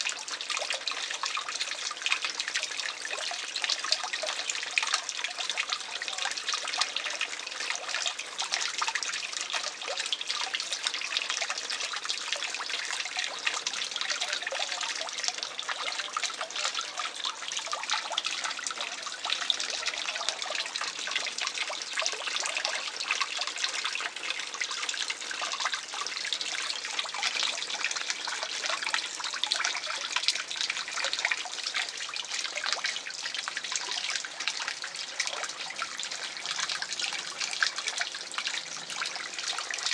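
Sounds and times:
water trickling into pond: 0.0 - 39.9.

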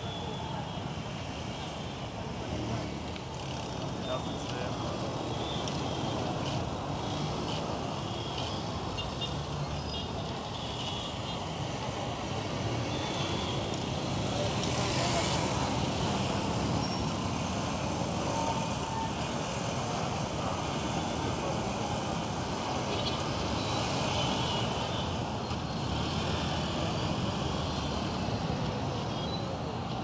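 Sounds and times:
motorcycles passing: 0.8 - 30.0
cars passing: 11.1 - 30.0.

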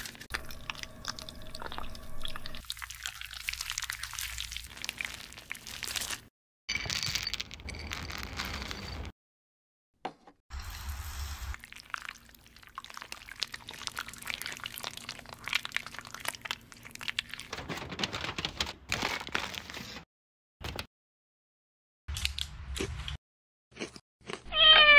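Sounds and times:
foil crinkling: 4.0 - 6.3, 15.1 - 20.0.

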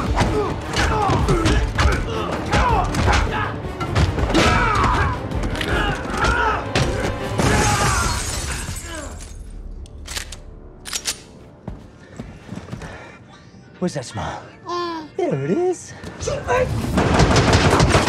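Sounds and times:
men grunting: 0.0 - 8.1
dramatic music: 0.0 - 12.5.

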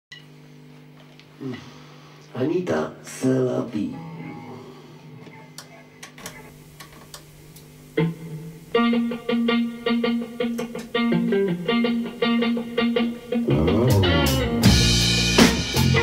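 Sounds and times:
electric guitar playing: 3.9 - 16.0.

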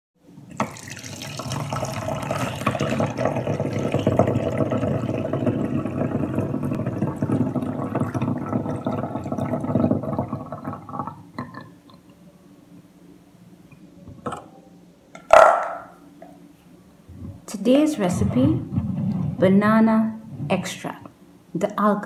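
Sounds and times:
liquid pouring into glass jug: 0.5 - 12.1.

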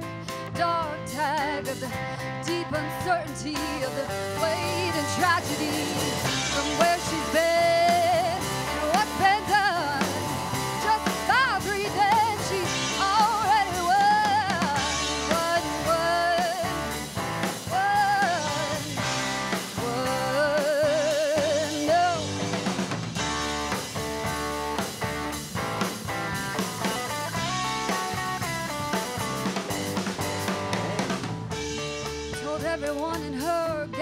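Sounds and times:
woman singing lead vocal: 0.0 - 22.4, 32.3 - 34.0
bass guitar: 0.0 - 34.0
drum kit with cymbals: 0.0 - 34.0
electric guitar: 0.0 - 34.0.

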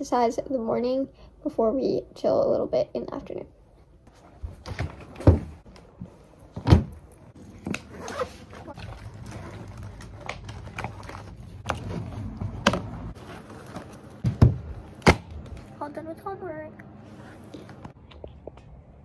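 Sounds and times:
books thudding on wooden floor: 4.6 - 5.6, 6.6 - 7.0, 14.2 - 15.6
paper rustling: 7.6 - 14.2.

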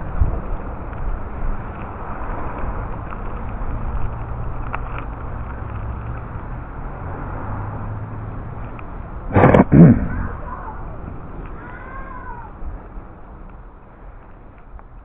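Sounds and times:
vehicle rolling on paved road: 0.0 - 15.0
short loud burst: 9.3 - 10.4
low hum: 9.3 - 11.1.

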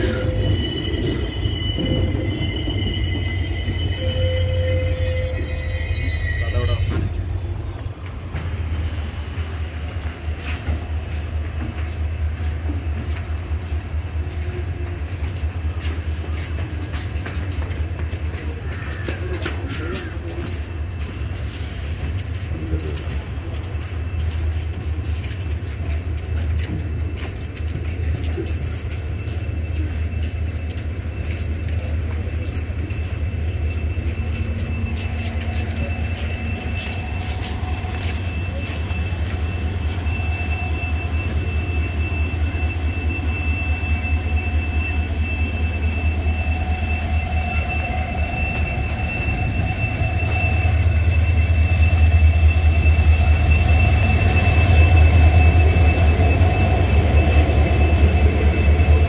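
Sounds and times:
standing train rumbling: 0.0 - 59.0.

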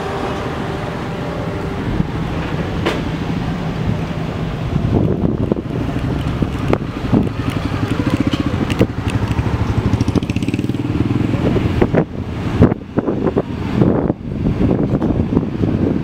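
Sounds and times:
wind buffeting microphone: 1.7 - 16.0
dirt bike engine running: 4.8 - 12.1.

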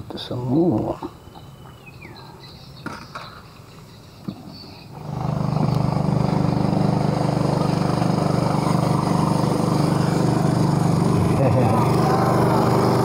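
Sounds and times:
motorboat engine running: 5.0 - 13.0.

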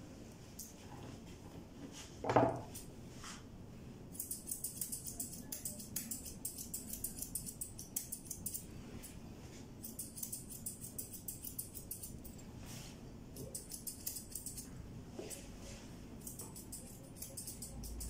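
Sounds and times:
scissors snipping fur: 4.1 - 8.7, 9.8 - 12.4, 13.4 - 14.7, 16.2 - 18.0.

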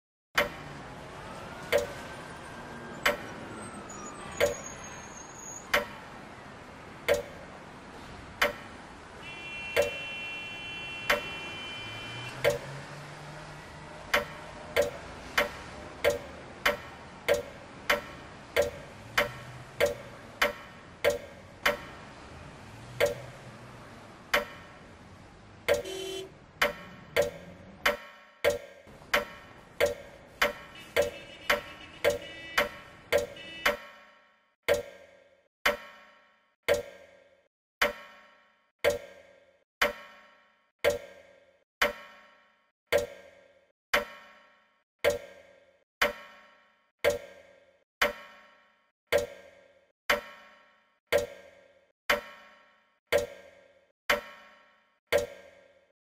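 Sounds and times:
clock ticking: 1.7 - 2.0, 3.0 - 3.3, 5.7 - 6.1, 7.0 - 7.5, 8.4 - 8.8, 9.4 - 10.2, 12.2 - 12.8, 14.0 - 22.1, 22.9 - 23.5, 24.2 - 24.9, 25.6 - 33.8, 34.7 - 35.0, 36.7 - 37.0, 40.8 - 41.2, 42.9 - 43.3, 47.0 - 47.4, 49.1 - 49.5, 51.1 - 51.5, 53.1 - 53.5, 55.1 - 55.6.

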